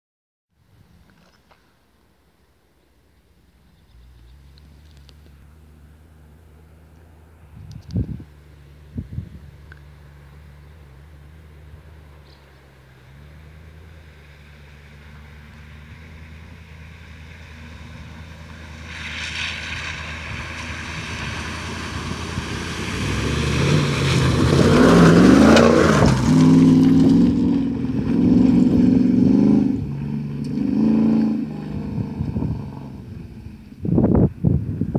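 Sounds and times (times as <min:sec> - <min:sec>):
car engine revving: 0:08.3 - 0:34.0
water splashing: 0:18.3 - 0:27.0.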